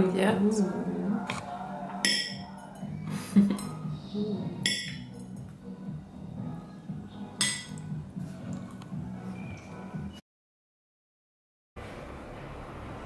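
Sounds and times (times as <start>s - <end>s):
background music: 0.0s - 10.2s.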